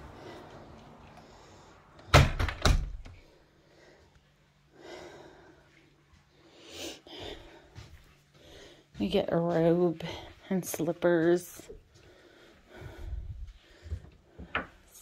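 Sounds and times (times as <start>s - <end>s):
door thumping shut: 2.1s - 3.2s.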